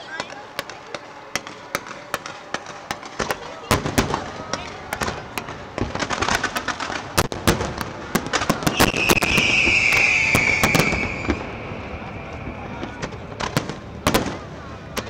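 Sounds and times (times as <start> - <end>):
fireworks bangs and bursts: 0.1 - 15.0
high hissing whistle: 8.7 - 12.8.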